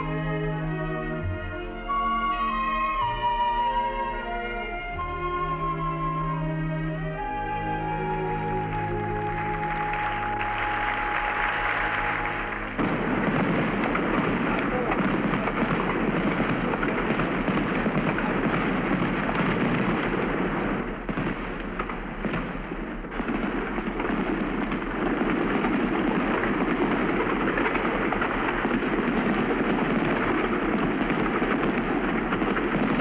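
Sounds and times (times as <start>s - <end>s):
fireworks crackling and popping: 8.2s - 33.0s.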